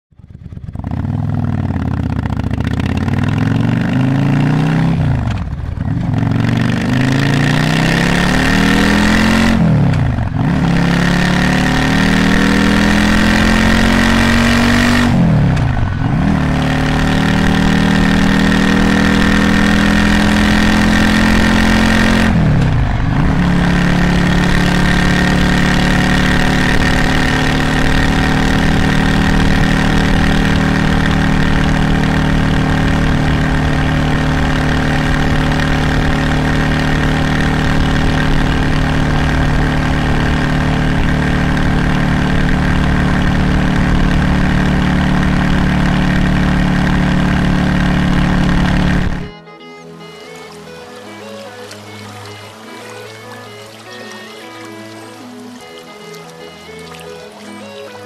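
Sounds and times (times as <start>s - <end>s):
motorcycle engine accelerating: 0.1s - 49.4s.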